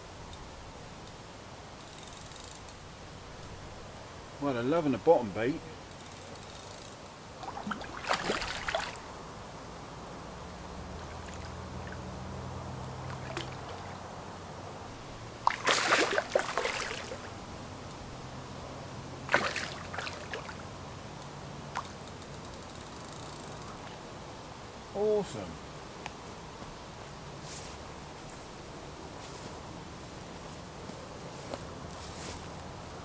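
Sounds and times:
fish splashing in water: 0:07.4 - 0:09.1, 0:11.0 - 0:12.1, 0:12.8 - 0:14.1, 0:15.4 - 0:17.4, 0:19.3 - 0:20.7.

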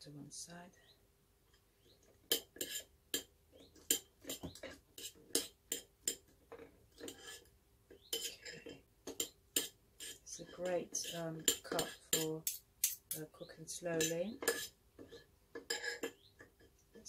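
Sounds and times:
cutlery clinking on a plate: 0:02.3 - 0:03.3, 0:03.9 - 0:07.4, 0:08.1 - 0:13.2, 0:14.0 - 0:16.7.

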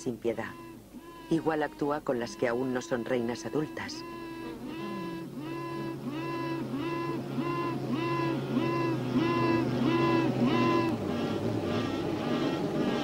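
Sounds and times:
queen bee piping: 0:00.0 - 0:12.0
steady low hum: 0:00.0 - 0:13.0.

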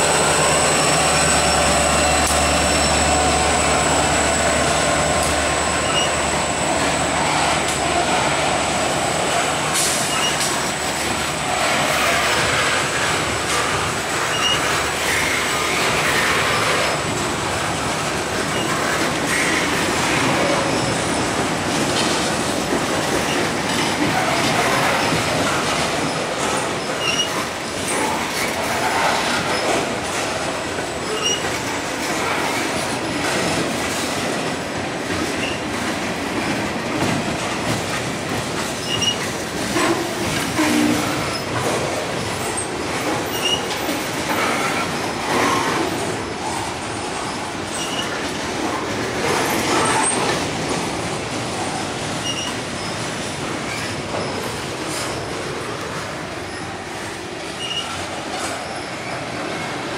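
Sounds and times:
high wheel squeals: 0:00.0 - 0:07.7, 0:09.8 - 0:10.9, 0:14.2 - 0:17.1, 0:23.3 - 0:27.5, 0:31.0 - 0:31.6, 0:38.8 - 0:39.2, 0:42.4 - 0:48.2, 0:52.2 - 0:53.0, 0:57.5 - 0:59.7
train wheels rumbling on rail: 0:00.0 - 0:59.9.

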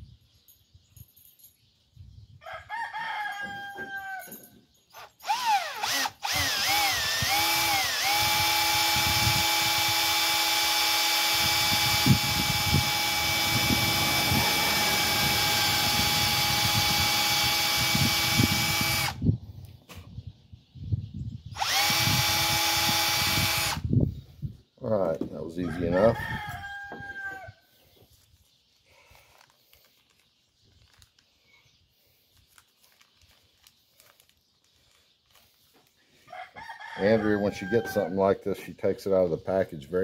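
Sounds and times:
cordless drill whining: 0:05.0 - 0:19.2, 0:21.6 - 0:23.9.

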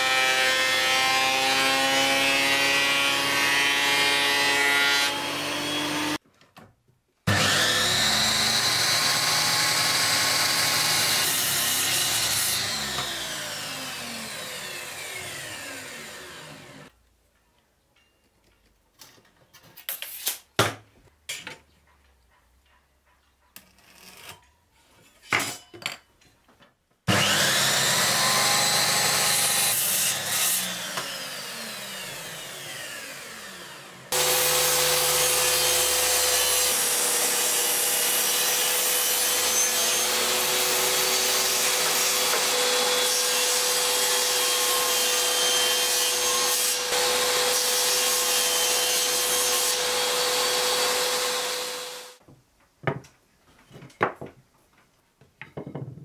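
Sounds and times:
miter saw cutting: 0:07.3 - 0:16.9, 0:27.1 - 0:52.2
table saw running: 0:07.3 - 0:16.9, 0:27.1 - 0:52.2.

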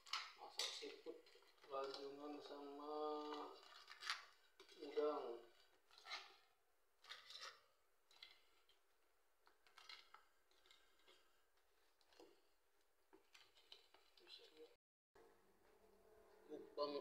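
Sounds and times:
metal utensil scraping pot: 0:00.0 - 0:08.8, 0:09.6 - 0:12.4, 0:13.2 - 0:14.8.

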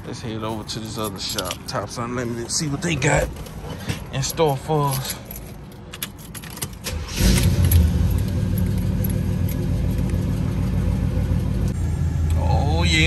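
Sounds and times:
car engine starting and idling: 0:02.9 - 0:13.0.

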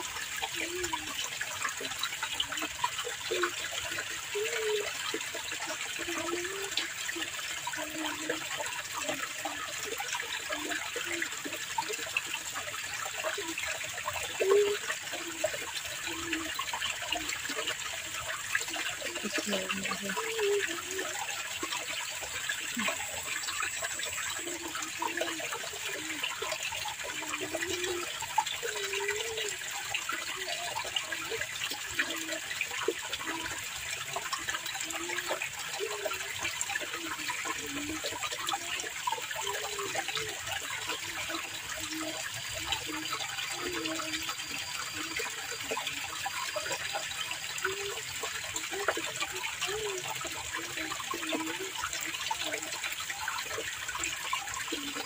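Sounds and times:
low water gurgles: 0:00.0 - 0:55.0
water rushing in channel: 0:00.0 - 0:55.0.

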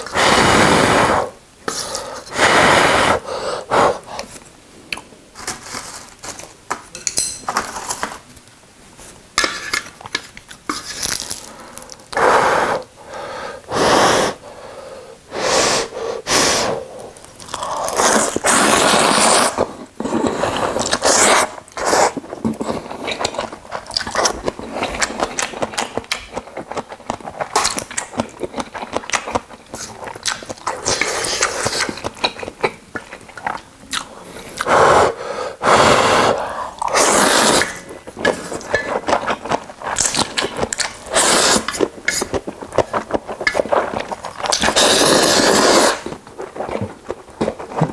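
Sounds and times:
slurping noodles: 0:17.6 - 0:25.4, 0:34.5 - 0:47.9
smacking chewing: 0:20.8 - 0:34.7, 0:36.4 - 0:47.9.

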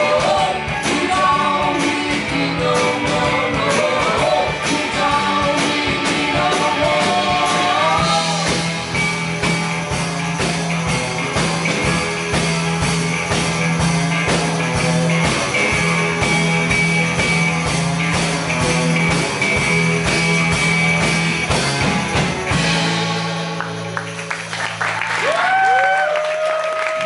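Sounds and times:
country rock band playing: 0:00.0 - 0:26.2
person whooping: 0:25.1 - 0:27.0.

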